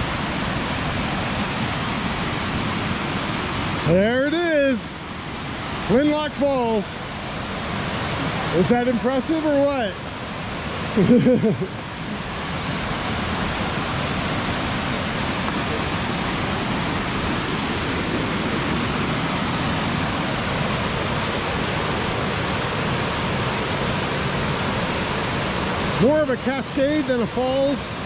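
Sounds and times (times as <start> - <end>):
waterfall cascading: 0.0 - 28.0.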